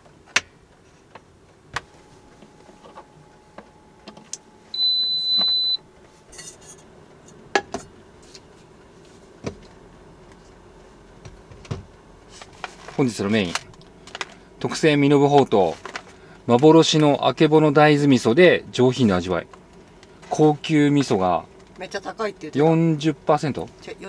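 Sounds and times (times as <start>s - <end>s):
induction cooker beep: 2.1s - 5.9s.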